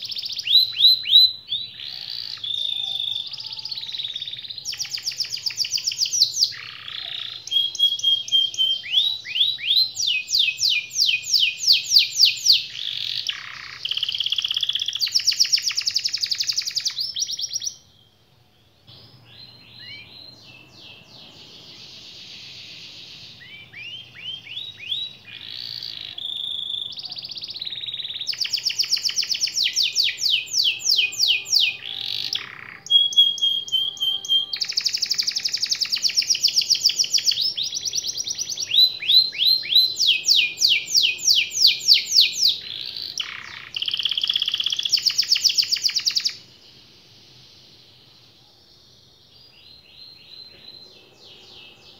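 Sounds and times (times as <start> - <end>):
canary singing trills: 0.0 - 51.9.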